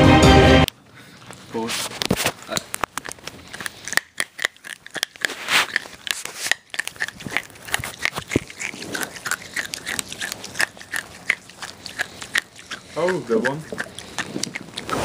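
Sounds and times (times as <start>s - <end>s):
hard candy crunching: 1.0s - 15.0s.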